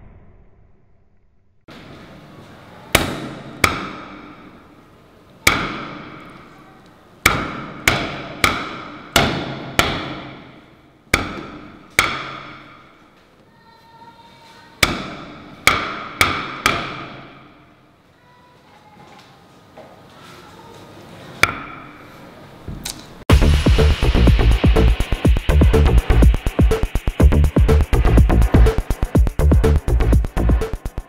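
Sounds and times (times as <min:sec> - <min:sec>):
axe striking wooden chopping block: 0:03.0 - 0:04.3, 0:05.5 - 0:06.2, 0:07.2 - 0:10.4, 0:11.1 - 0:12.7, 0:14.8 - 0:17.3.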